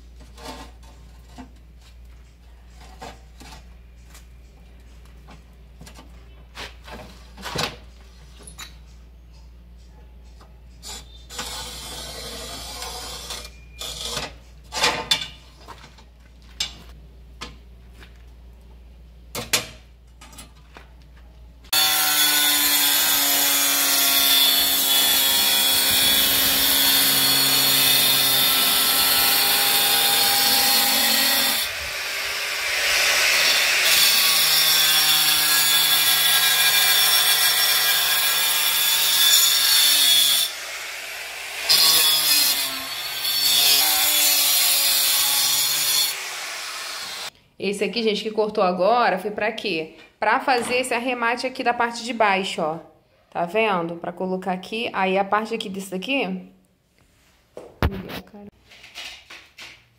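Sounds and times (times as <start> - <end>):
electric tile saw cutting: 21.7 - 47.3.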